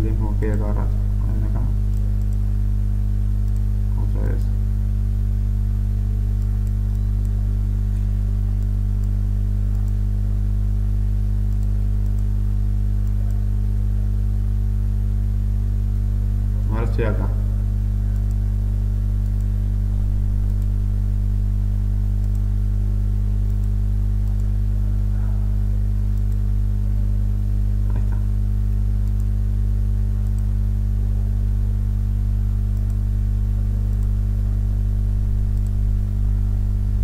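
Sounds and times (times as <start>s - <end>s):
steady electrical hum: 0.0s - 37.0s
faint clicks: 22.2s - 22.5s, 32.8s - 33.0s, 35.5s - 35.8s.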